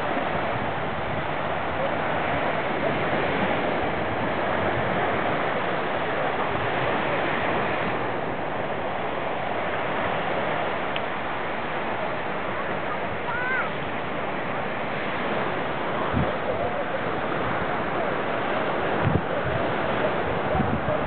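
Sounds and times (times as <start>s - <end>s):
small waves breaking on sand: 0.0s - 21.0s.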